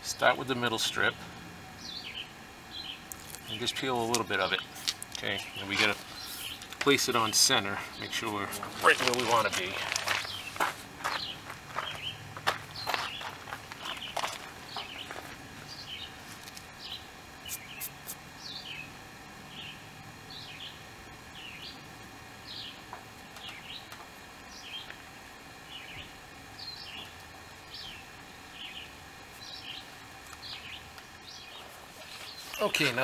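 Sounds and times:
bird chirping: 0:01.8 - 0:08.2, 0:10.1 - 0:16.2, 0:16.8 - 0:18.9, 0:19.5 - 0:21.8, 0:22.4 - 0:22.8, 0:23.4 - 0:23.9, 0:24.5 - 0:24.9, 0:25.7 - 0:32.8.

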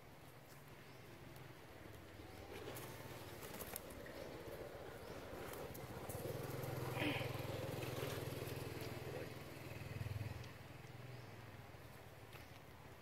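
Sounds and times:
vehicle engine droning: 0:02.0 - 0:11.8.

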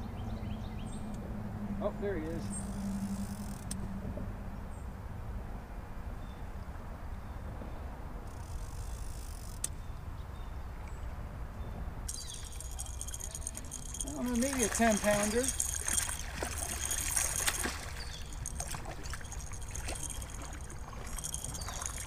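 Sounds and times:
low outdoor rumble: 0:11.3 - 0:22.0
fish splashing: 0:12.1 - 0:22.0.

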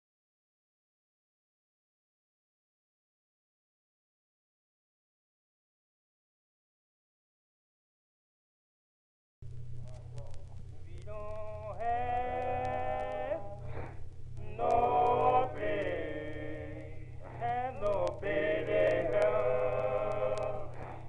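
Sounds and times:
steady low drone: 0:09.4 - 0:21.0
man singing long sliding notes: 0:11.1 - 0:13.7, 0:14.4 - 0:21.0.

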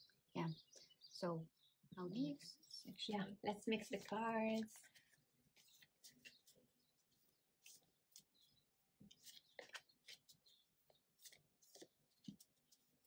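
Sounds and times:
cards being shuffled: 0:03.9 - 0:08.5, 0:09.1 - 0:13.0.

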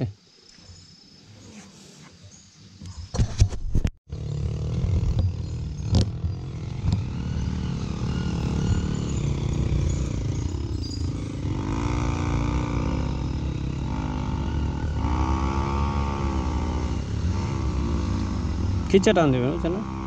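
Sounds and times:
motorcycle engine running: 0:04.1 - 0:20.0.

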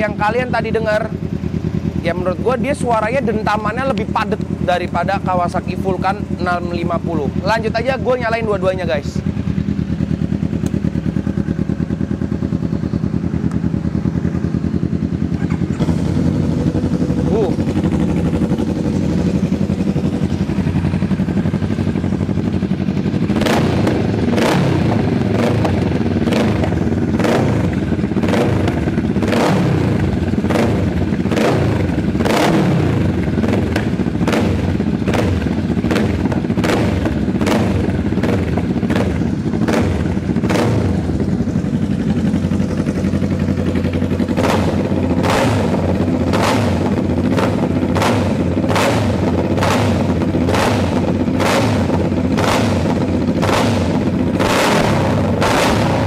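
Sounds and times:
motorcycle engines revving: 0:00.0 - 0:56.0
sharp exhaust pops and bangs: 0:10.4 - 0:11.2, 0:23.1 - 0:56.0.

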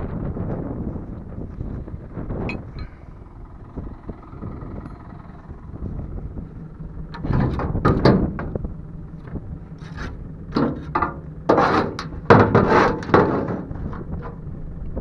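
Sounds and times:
tractor engine running: 0:00.0 - 0:15.0
hoe scraping manure off metal: 0:09.8 - 0:14.1.

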